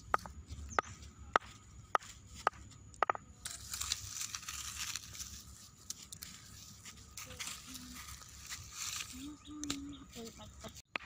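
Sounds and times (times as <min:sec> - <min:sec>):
stone knocking on stem: 0:00.1 - 0:03.2
crushed stem crackling rustle: 0:03.4 - 0:10.8.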